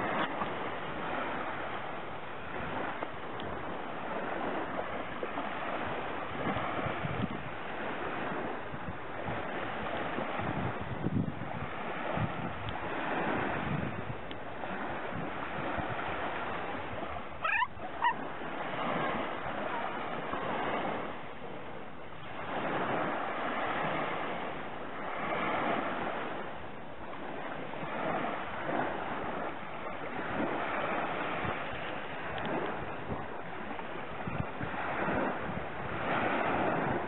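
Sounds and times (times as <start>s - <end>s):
small waves breaking on shore: 0.0s - 37.0s
short high-pitched cries: 17.4s - 18.2s.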